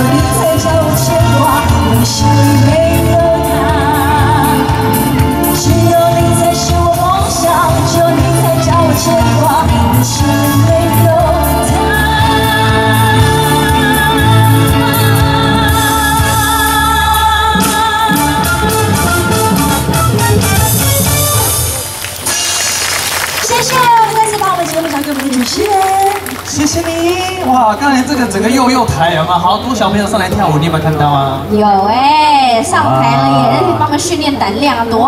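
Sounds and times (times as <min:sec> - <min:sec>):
woman singing: 0:00.0 - 0:18.8
live rock band: 0:00.0 - 0:27.6.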